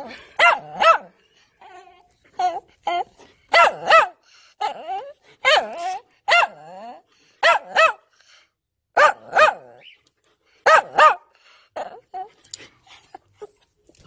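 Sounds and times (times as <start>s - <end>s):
dog barking: 0.4s - 1.2s, 3.5s - 4.2s, 5.4s - 6.7s, 7.4s - 8.1s, 9.0s - 9.8s, 10.6s - 11.3s.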